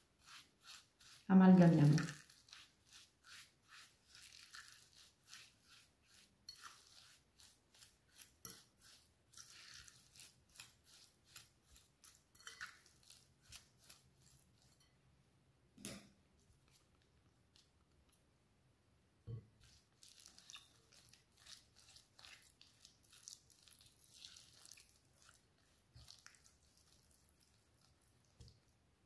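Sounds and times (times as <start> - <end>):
fork scraping glass bowl: 0.0 - 15.0
fork tapping bowl: 12.3 - 12.9.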